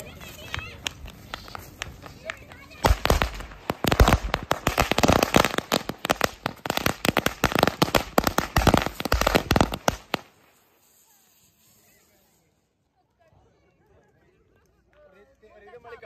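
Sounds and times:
firecrackers banging: 0.0s - 10.8s.

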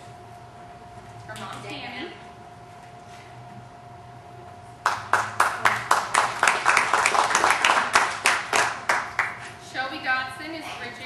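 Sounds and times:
faint steady hum: 0.0s - 11.0s
hands clapping: 4.8s - 9.5s.

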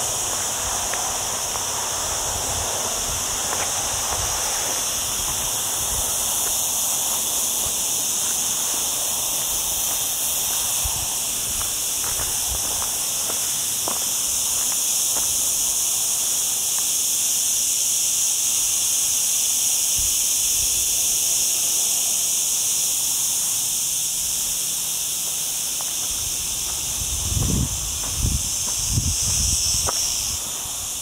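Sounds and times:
footsteps on dirt path: 0.0s - 16.9s, 25.0s - 31.0s
cicadas buzzing: 0.0s - 31.0s.

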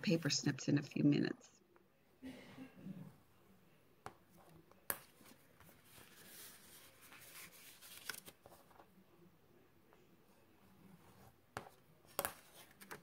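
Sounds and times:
paper rustling as folded: 5.2s - 8.9s.

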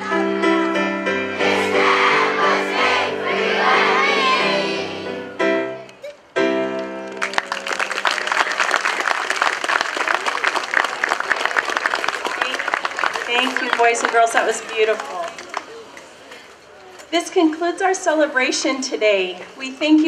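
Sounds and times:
instrumental accompaniment: 0.0s - 7.8s
girls singing: 1.3s - 5.2s
audience applauding: 7.0s - 15.8s.

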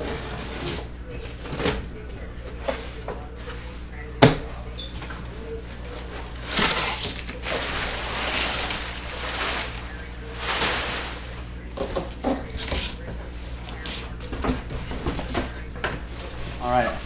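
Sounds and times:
rummaging in cardboard box: 0.0s - 1.9s, 5.6s - 17.0s.

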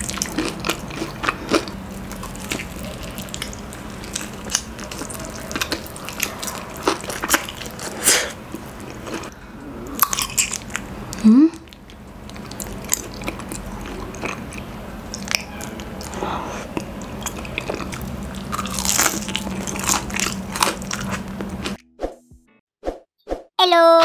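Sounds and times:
crunchy food chewing: 0.0s - 21.8s.

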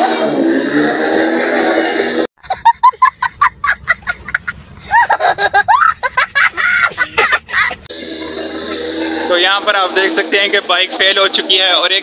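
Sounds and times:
young boy laughing: 2.4s - 7.9s.

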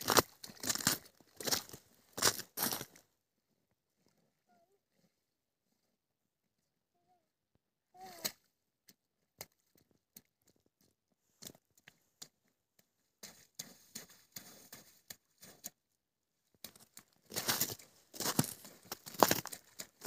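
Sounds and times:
boots splashing through slush: 0.0s - 3.0s, 13.0s - 15.8s, 16.6s - 20.0s.

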